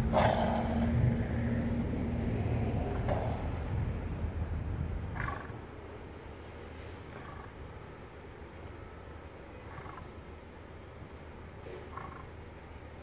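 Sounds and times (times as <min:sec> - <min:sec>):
lion growling: 0:00.0 - 0:01.0, 0:05.1 - 0:05.6.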